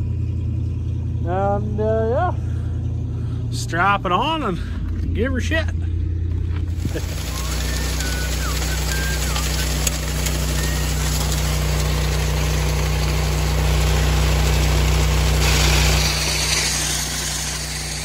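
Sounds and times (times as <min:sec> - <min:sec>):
truck engine humming: 0:00.0 - 0:18.0
rushing hiss: 0:06.8 - 0:13.2.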